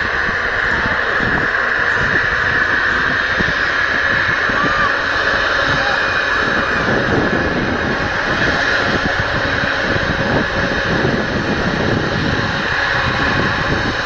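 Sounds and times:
jet engines running with whine: 0:00.0 - 0:14.0.

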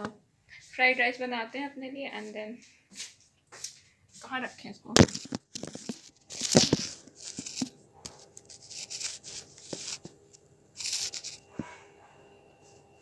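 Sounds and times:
phone handling rubbing and scraping: 0:05.0 - 0:11.6.

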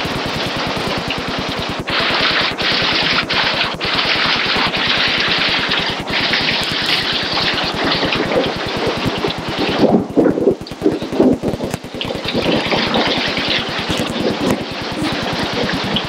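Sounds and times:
torrential rain and wind: 0:00.0 - 0:16.0.

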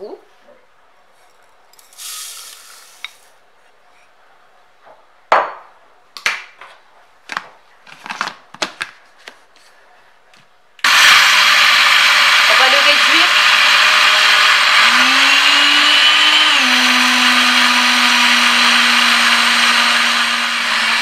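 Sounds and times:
blender motor grinding: 0:10.8 - 0:21.0.

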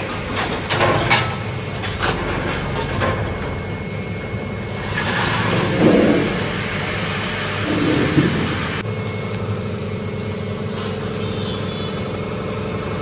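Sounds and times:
steel panel clanking and scraping: 0:00.0 - 0:08.8.

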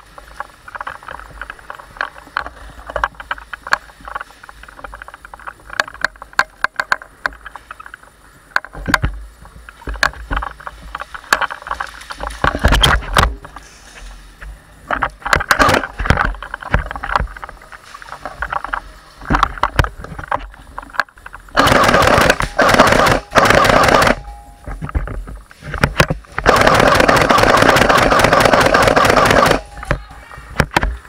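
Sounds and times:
rapid airsoft rifle fire: 0:15.6 - 0:15.9, 0:21.5 - 0:24.3, 0:26.4 - 0:29.9.

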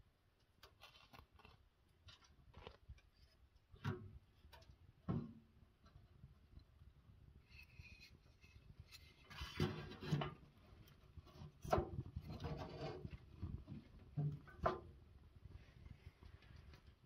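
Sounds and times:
wood scraping against stove: 0:07.4 - 0:14.9.

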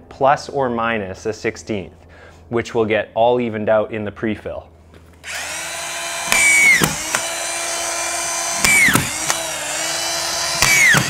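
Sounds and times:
screw gun motor whining: 0:05.2 - 0:11.0.

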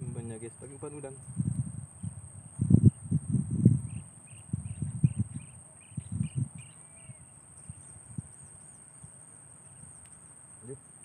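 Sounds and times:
bird chirps: 0:03.8 - 0:08.8.

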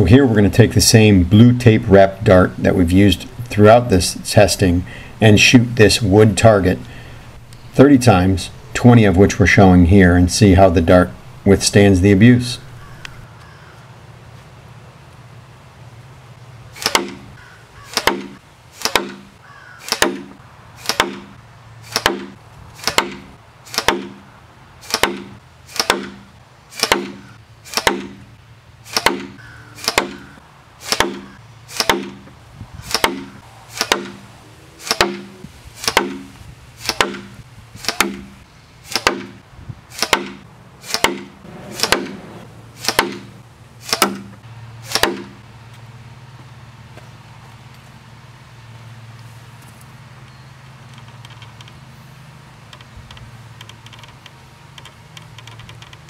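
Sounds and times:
blowgun dart striking wooden board: 0:16.8 - 0:17.2, 0:17.9 - 0:21.3, 0:21.9 - 0:24.2, 0:24.9 - 0:28.2, 0:28.9 - 0:32.3, 0:32.9 - 0:34.2, 0:34.8 - 0:39.4, 0:40.0 - 0:45.4.

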